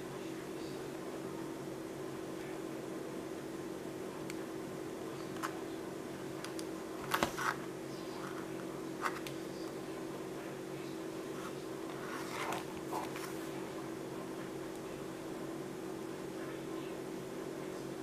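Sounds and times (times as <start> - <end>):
steady hum: 0.0 - 18.0
paper rustling: 7.0 - 9.3, 11.4 - 13.6.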